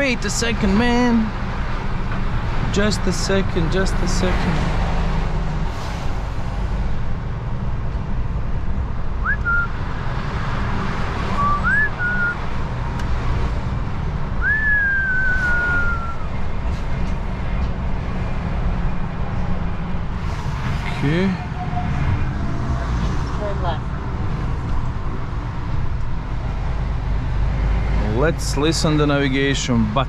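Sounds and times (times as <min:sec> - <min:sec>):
road noise: 0:00.0 - 0:30.0
truck engine rumble: 0:00.0 - 0:30.0
person whistling: 0:09.2 - 0:09.7, 0:11.4 - 0:12.4, 0:14.4 - 0:16.3.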